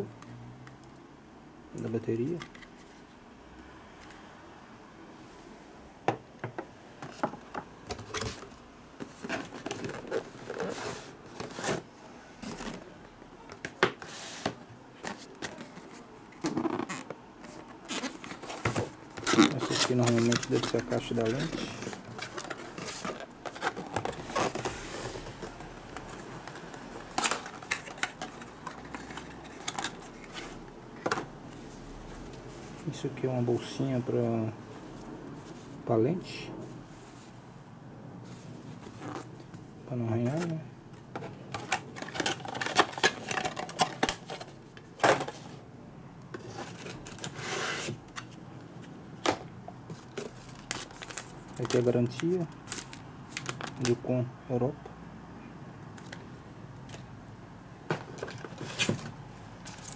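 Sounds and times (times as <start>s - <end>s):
paper packaging rustling: 7.9s - 33.0s, 40.2s - 45.6s, 46.3s - 54.0s, 57.9s - 59.9s.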